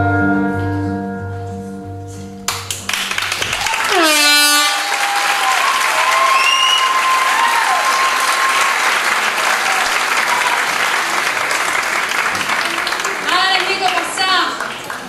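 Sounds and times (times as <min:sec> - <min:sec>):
audience applauding and cheering: 0:02.5 - 0:15.0
loud whoops: 0:03.4 - 0:10.8
long held whistle or cry: 0:03.8 - 0:08.3.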